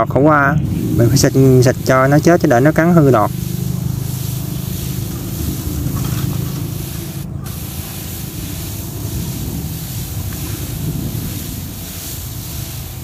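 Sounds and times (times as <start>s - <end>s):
sprayer lance hissing: 0.6s - 13.0s
steady low hum: 0.6s - 13.0s.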